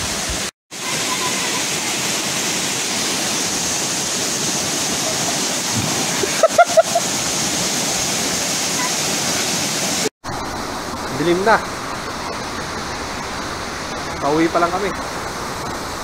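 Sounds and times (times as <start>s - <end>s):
waterfall rushing: 0.0s - 16.0s
person jumping into water splash: 4.9s - 7.7s.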